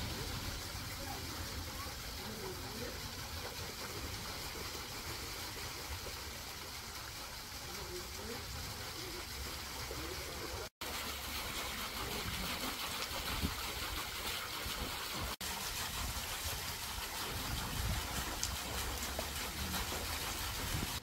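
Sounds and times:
wind buffeting microphone: 17.3 - 18.4.

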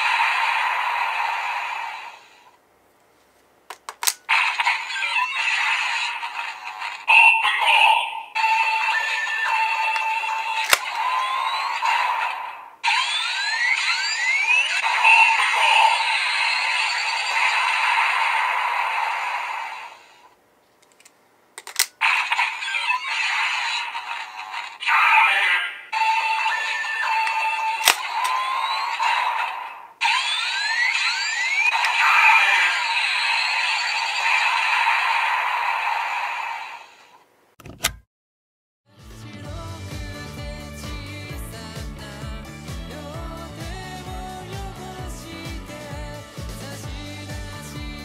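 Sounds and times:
toy blaster sound effects: 0.0 - 2.5, 4.0 - 20.3, 21.8 - 37.2
plastic clicks from toy: 3.7 - 4.3, 9.9 - 10.9, 20.8 - 22.0, 27.2 - 28.4
toy clicks: 3.7 - 7.8, 8.4 - 11.8, 20.8 - 29.2
electronic toy music: 4.6 - 12.2, 12.9 - 17.5, 24.8 - 29.0.

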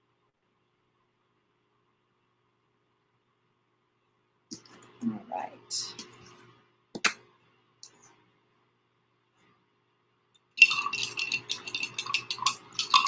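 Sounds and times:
small hard objects clinking: 10.6 - 13.0.

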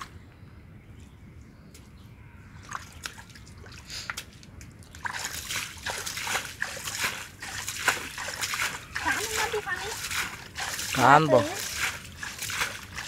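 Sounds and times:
hands sloshing in muddy water: 2.6 - 13.0.

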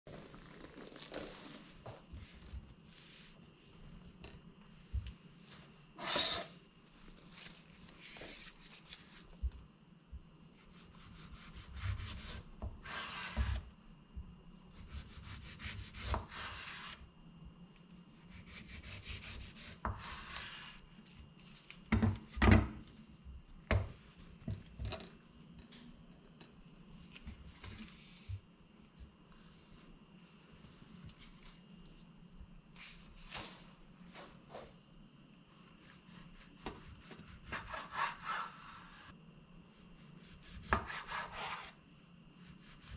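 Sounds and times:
scrapes and rubs of slices: 10.6 - 13.6, 14.7 - 17.0, 40.2 - 41.8
knife sawing through tomato: 37.2 - 39.0, 40.2 - 41.8.

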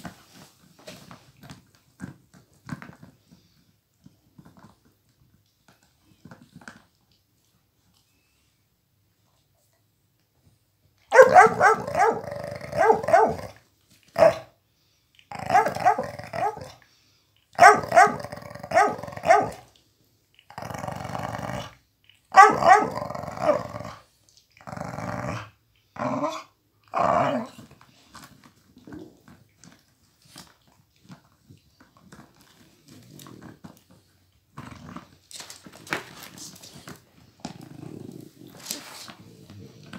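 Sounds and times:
dogs growling in play: 11.1 - 13.6, 15.2 - 16.8, 17.6 - 19.7, 20.3 - 31.4, 32.0 - 35.5, 36.9 - 39.9.

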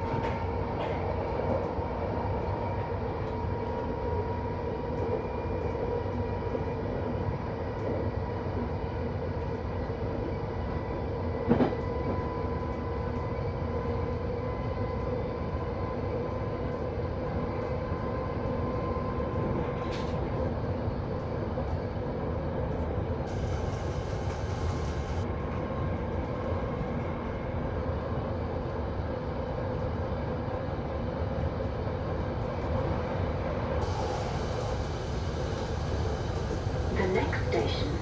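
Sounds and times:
train wheels rumbling on rail: 0.0 - 38.0
constant hum: 31.3 - 38.0
rush of hiss: 33.8 - 38.0.

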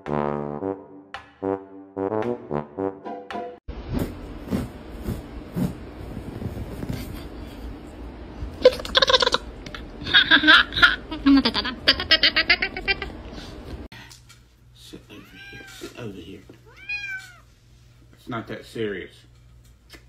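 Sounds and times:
person laughing: 8.6 - 13.2.

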